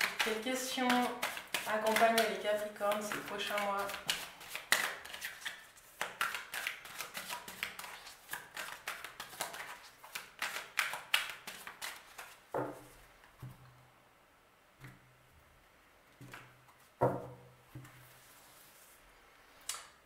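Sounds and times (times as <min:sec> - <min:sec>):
cards being shuffled: 0:00.0 - 0:12.4.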